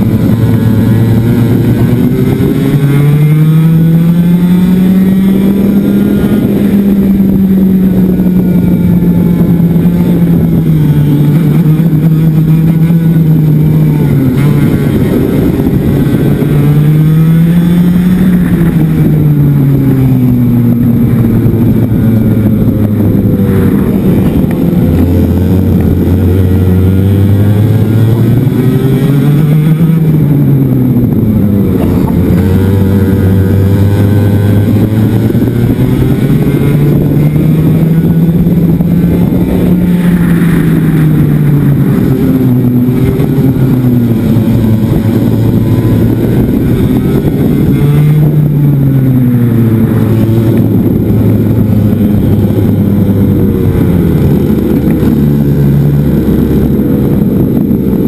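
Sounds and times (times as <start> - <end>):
kart engine revving: 0.0 - 58.0
wind on microphone: 0.0 - 58.0.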